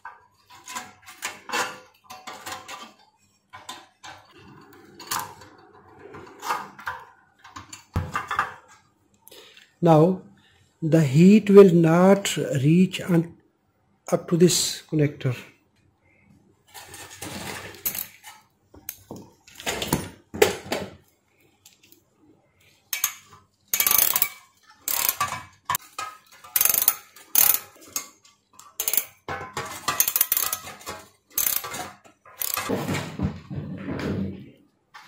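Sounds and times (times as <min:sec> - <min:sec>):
ratchet clicking: 0:22.9 - 0:25.8, 0:26.4 - 0:28.0, 0:28.6 - 0:29.2, 0:30.0 - 0:31.8, 0:32.4 - 0:32.7.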